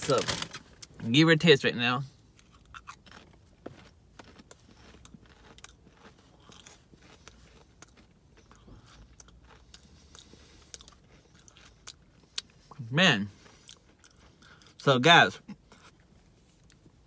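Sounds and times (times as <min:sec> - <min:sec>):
person chewing crisp chip: 0:02.2 - 0:14.9.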